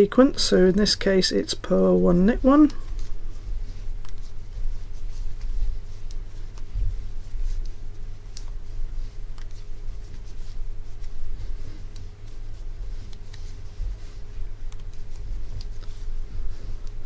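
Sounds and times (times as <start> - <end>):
faint hum: 0.0 - 17.0
yarn rustling: 0.0 - 17.0.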